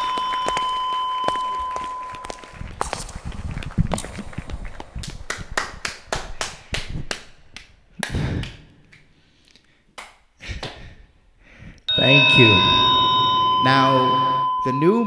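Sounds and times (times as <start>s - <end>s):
person clapping: 0.0s - 9.1s, 10.0s - 10.9s.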